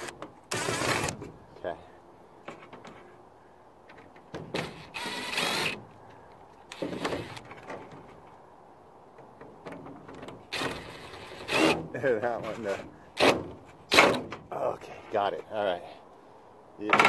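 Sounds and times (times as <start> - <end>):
cordless drill running: 4.9 - 5.8.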